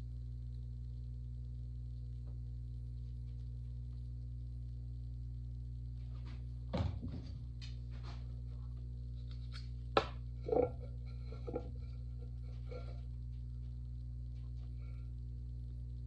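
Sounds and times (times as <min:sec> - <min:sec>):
steady low hum: 0:00.0 - 0:16.0
pottery tools knocking and clicking: 0:10.0 - 0:11.8.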